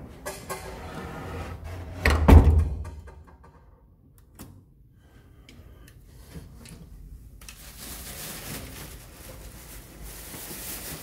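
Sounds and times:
wooden door shutting with a thud: 2.0 - 3.1.

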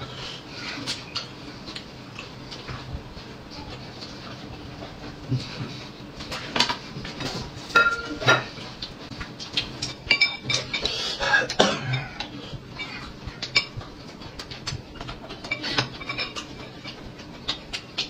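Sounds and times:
people eating: 0.0 - 18.0
tableware clinking: 7.7 - 8.6, 9.8 - 10.9, 15.4 - 17.0.

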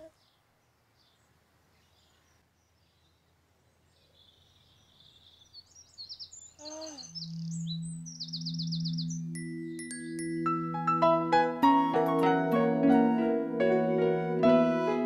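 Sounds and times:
birds chirping and twittering: 0.0 - 10.4.

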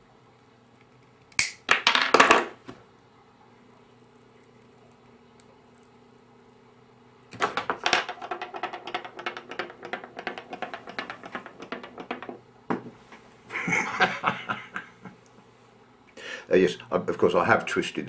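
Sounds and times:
small items knocking on wooden bench: 7.4 - 13.0.

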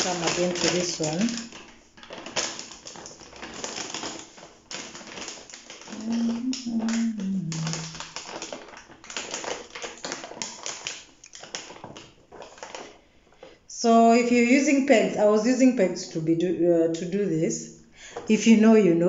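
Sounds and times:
plastic bag crinkling: 0.0 - 16.3
low hum falling in pitch: 6.0 - 7.9.

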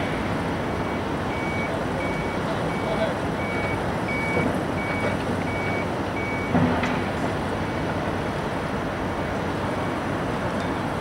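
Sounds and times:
heavy earthmoving machinery: 0.0 - 11.0
reversing alarm beeps: 0.7 - 6.6.

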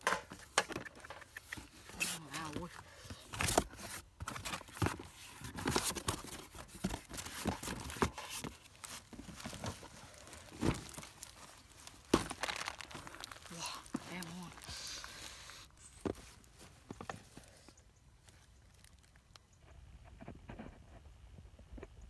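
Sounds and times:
cardboard box flaps rustling: 3.4 - 11.5.

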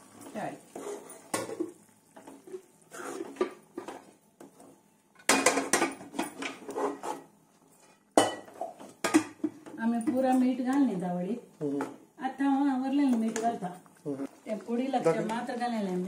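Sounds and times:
steel spoon scraping metal pan: 2.9 - 3.5, 6.4 - 7.3.

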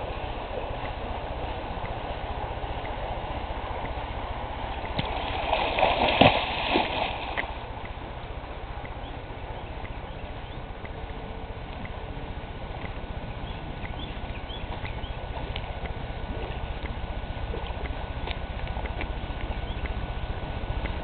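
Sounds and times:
water splashing: 0.0 - 8.2.

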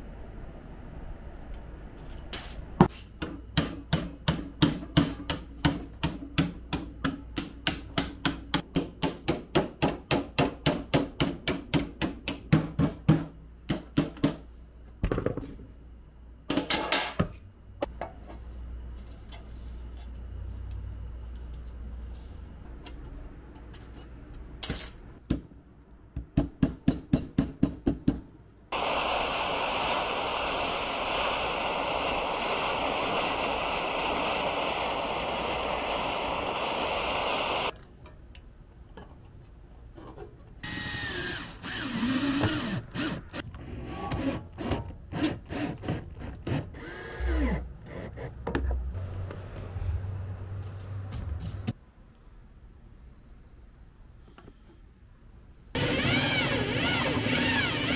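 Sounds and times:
gas torch flame hiss: 28.7 - 37.7.

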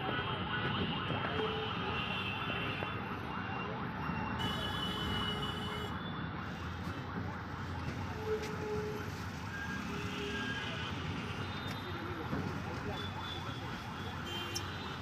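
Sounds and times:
traffic engines running: 0.0 - 15.0
vehicle horns: 4.4 - 6.0, 13.0 - 15.0.

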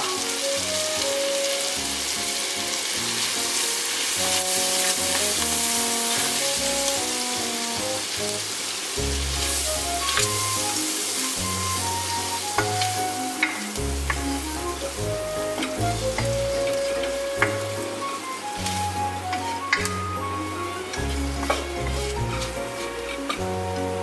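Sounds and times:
vegetables sizzling in butter: 0.0 - 24.0
wooden spoon stirring: 12.6 - 18.0, 20.5 - 24.0.

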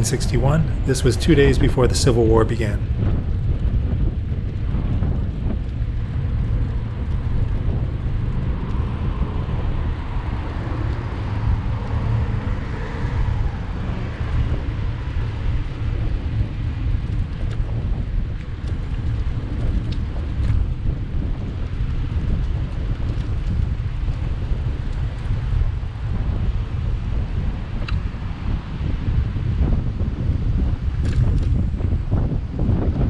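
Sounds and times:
car traffic: 0.0 - 2.9, 7.8 - 17.2
wind on microphone: 0.0 - 33.0.

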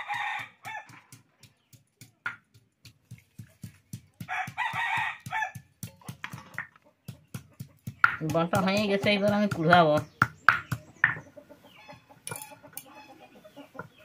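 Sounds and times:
knife chopping on wooden board: 0.2 - 11.2
rooster crowing: 4.3 - 5.6.

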